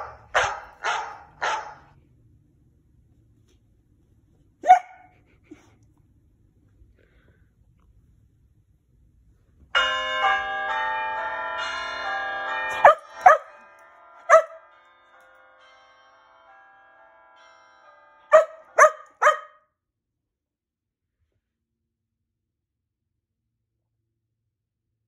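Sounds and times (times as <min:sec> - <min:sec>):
dog barking: 0:00.0 - 0:01.9, 0:04.6 - 0:05.1, 0:12.8 - 0:13.6, 0:14.3 - 0:14.6, 0:18.3 - 0:19.6
bell chime from a speaker: 0:09.8 - 0:18.9.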